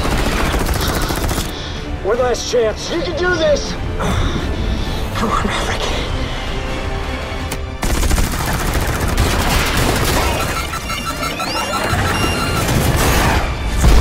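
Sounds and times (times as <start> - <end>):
film score: 0.0 - 14.0
jet cannon firing rapid burst: 7.8 - 14.0.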